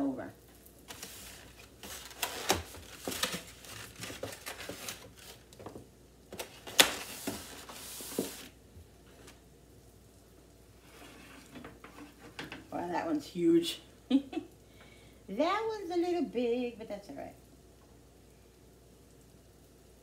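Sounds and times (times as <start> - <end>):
fabric rustling on microphone: 0.8 - 5.5.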